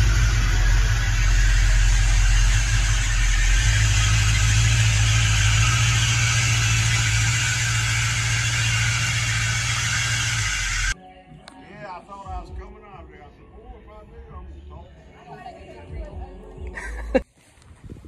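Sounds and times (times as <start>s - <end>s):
excavator diesel engine running: 0.0s - 11.0s.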